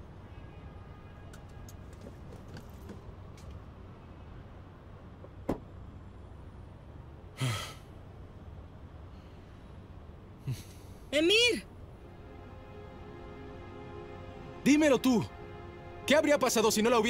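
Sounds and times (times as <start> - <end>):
breathy sigh: 7.4 - 7.9.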